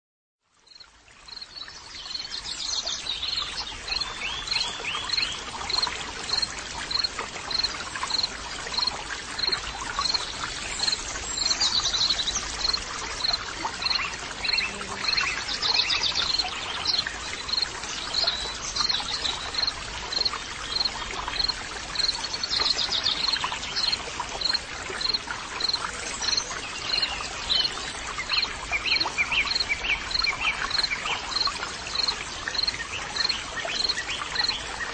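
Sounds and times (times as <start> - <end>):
insect chorus: 3.9 - 27.8.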